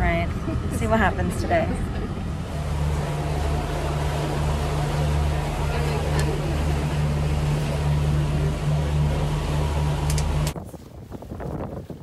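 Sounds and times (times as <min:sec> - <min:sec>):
wind buffeting microphone: 0:00.0 - 0:08.1, 0:10.1 - 0:12.0
boat engine droning: 0:00.0 - 0:10.6
water wash: 0:00.0 - 0:10.6.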